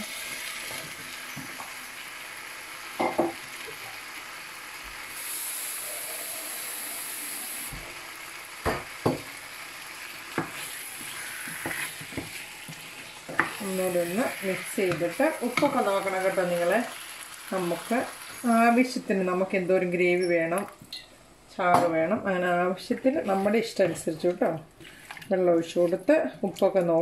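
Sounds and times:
curry sizzling in frying pan: 0.0 - 19.5.

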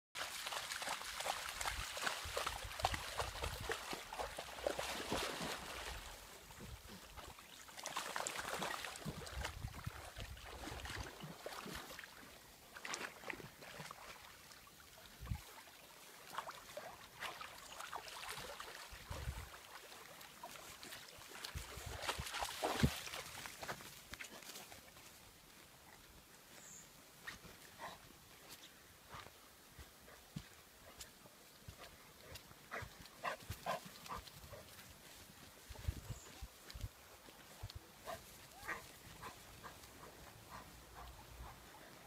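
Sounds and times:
dog splashing in water: 0.2 - 6.2, 7.2 - 12.2, 16.2 - 23.6.

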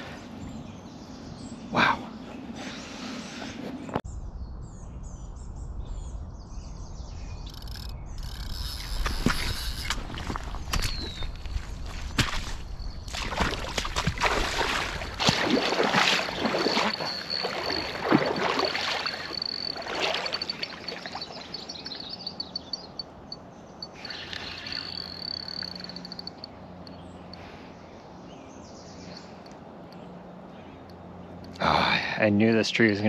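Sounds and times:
wading steps splashing in water: 9.1 - 22.1.

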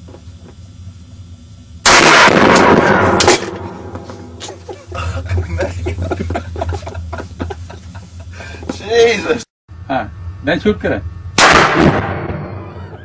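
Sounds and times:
rifle shot with echo: 1.9 - 3.9, 11.4 - 12.7
voices and laughter: 4.4 - 8.8.

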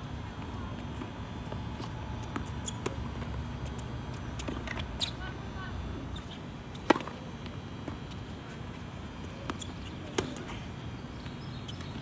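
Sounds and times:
tennis ball hitting racket and court: 1.8 - 5.2, 6.1 - 8.8, 9.4 - 10.5.

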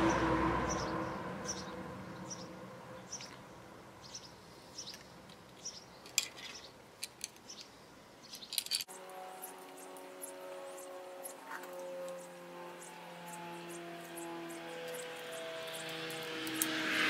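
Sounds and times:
pliers clicking on wire: 16.1 - 16.8.

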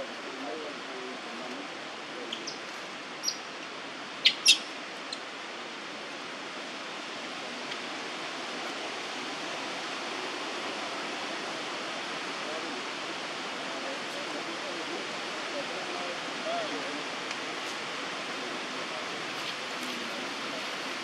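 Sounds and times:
outdoor background hiss: 0.0 - 21.0
small animal chirping: 4.2 - 4.7.

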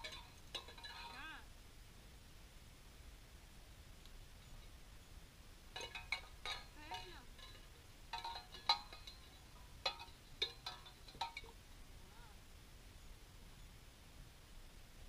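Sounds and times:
tin cans clanking over grass: 0.0 - 1.4, 5.7 - 11.6.

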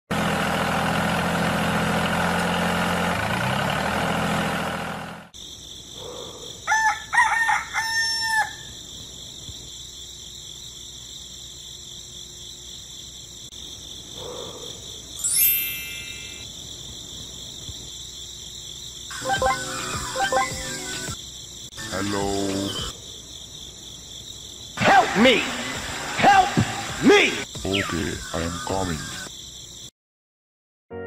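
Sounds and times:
small tractor motor running: 0.1 - 5.3
insect chirring: 5.4 - 24.8, 27.4 - 29.9
rooster crowing: 6.5 - 8.8.

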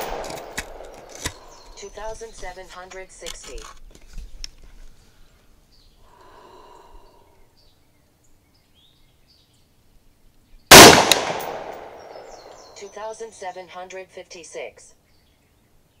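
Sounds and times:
rifle shot with ringing echo: 0.0 - 1.6, 10.7 - 12.5.

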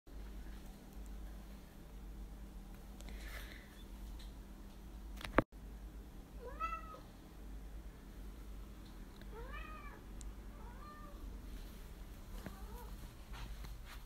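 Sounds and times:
cat meowing: 6.4 - 7.1, 9.3 - 10.0.

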